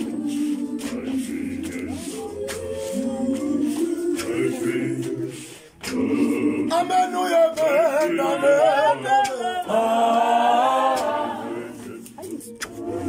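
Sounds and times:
congregation singing a hymn: 0.0 - 13.0
single high voice singing: 0.0 - 13.0.

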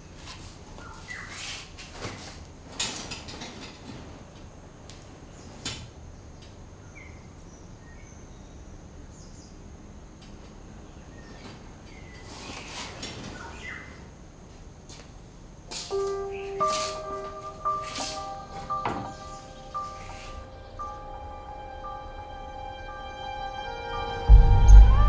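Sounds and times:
faint bird chirps: 0.8 - 1.5, 5.3 - 9.7, 10.8 - 14.1.

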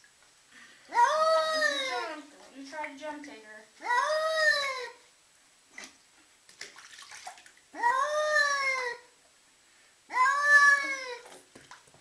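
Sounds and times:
water splashing in a bath: 5.7 - 7.7, 11.0 - 12.0
cat yowling: 7.8 - 9.0, 10.1 - 11.2.

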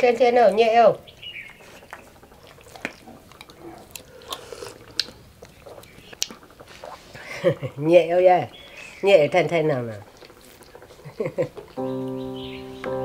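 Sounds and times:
dog licking and smacking lips: 1.4 - 7.7, 9.7 - 11.8.

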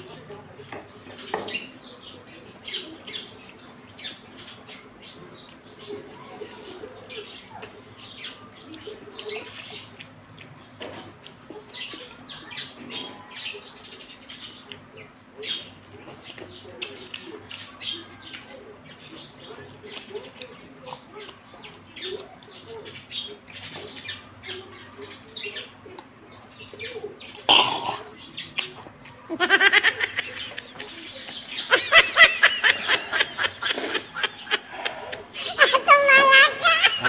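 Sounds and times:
wet chewing with smacks: 8.6 - 12.5, 14.6 - 23.7, 28.4 - 29.2.

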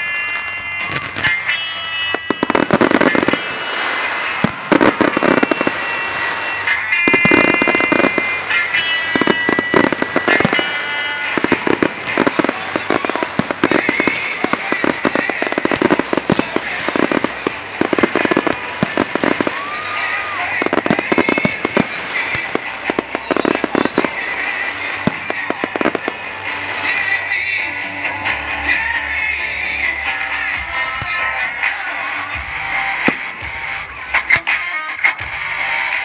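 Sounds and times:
steady high tones: 0.0 - 34.2
fireworks crackling: 0.0 - 36.0
firework shells bursting: 0.2 - 27.5.

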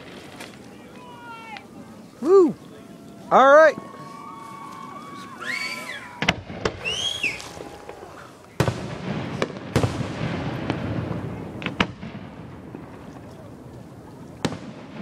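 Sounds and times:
fireworks bursting bangs: 0.0 - 1.8, 5.5 - 15.0
rolling rumble: 0.0 - 5.2, 6.1 - 15.0.

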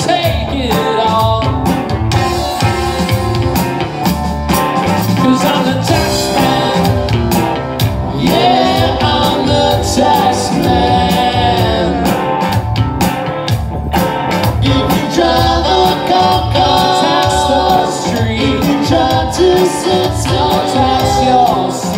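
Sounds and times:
lead vocal singing: 0.0 - 1.8, 5.0 - 12.7, 14.4 - 21.9
drums: 0.0 - 21.9
electric guitars: 0.0 - 21.9.

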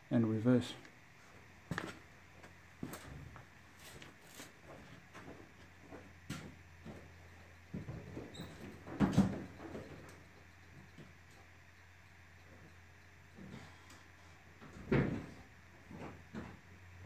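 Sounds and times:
faint low hum: 0.0 - 17.0
footsteps: 1.2 - 10.1.

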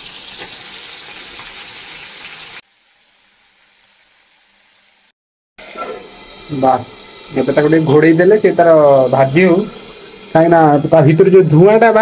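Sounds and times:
prawns sizzling in hot oil: 0.0 - 12.0.

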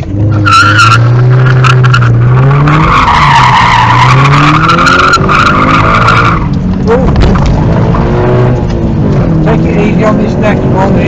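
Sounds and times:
car engine revving: 0.0 - 11.0
tyres squealing: 0.3 - 7.1.

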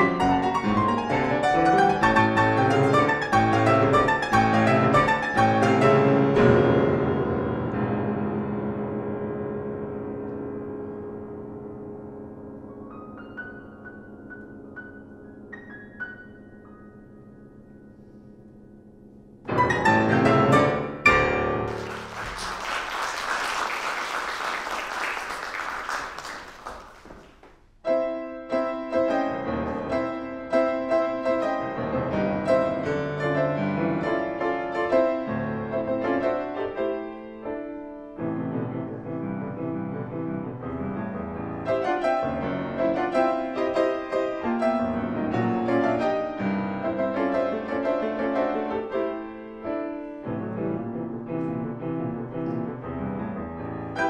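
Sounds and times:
grand piano playing: 0.0 - 27.2, 27.8 - 54.0
audience applause: 21.7 - 27.5.

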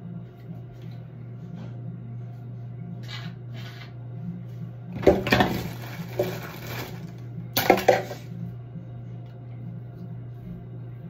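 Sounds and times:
steady low hum: 0.0 - 11.0
rustling and clattering objects: 4.9 - 8.4.

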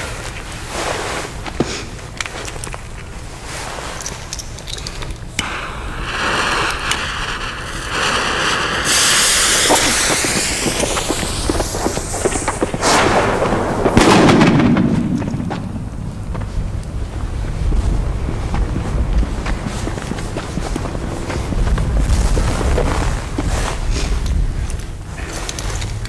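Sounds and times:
handling and hissing noise: 0.0 - 26.0
wind rumbling on microphone: 4.8 - 26.0
firecracker bang: 5.4 - 24.2.

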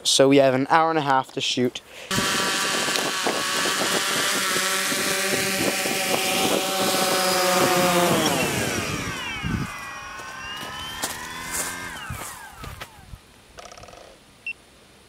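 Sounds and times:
drone propellers buzzing: 2.1 - 13.2.

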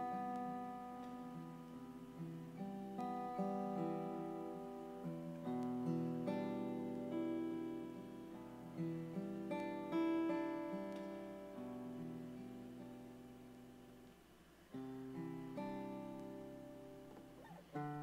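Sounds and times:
acoustic guitar strumming chords: 0.0 - 18.0.

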